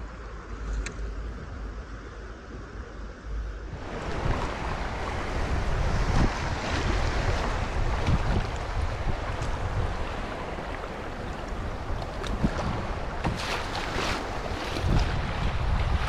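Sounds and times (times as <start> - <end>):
choppy river water rushing: 3.6 - 16.0
wind buffeting microphone: 3.6 - 16.0
water splashes: 3.7 - 16.0.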